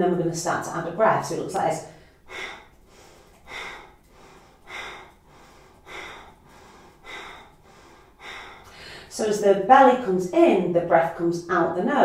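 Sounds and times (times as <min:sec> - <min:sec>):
faint in-breaths: 0:01.8 - 0:09.2.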